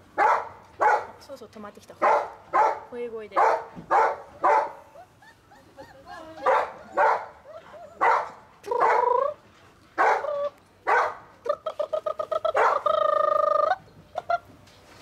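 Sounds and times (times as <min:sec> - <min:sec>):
puppies yelping and whining: 0:04.3 - 0:09.4.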